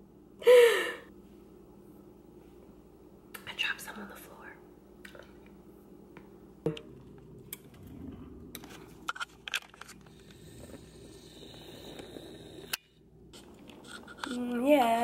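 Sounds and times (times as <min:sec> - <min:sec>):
camera handling rustling: 0:08.6 - 0:10.1.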